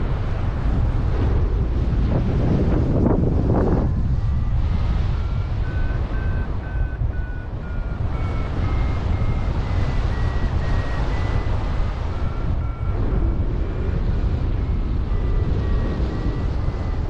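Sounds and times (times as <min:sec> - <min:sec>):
wind rushing on microphone: 0:00.0 - 0:17.0
variometer beeping: 0:03.4 - 0:17.0.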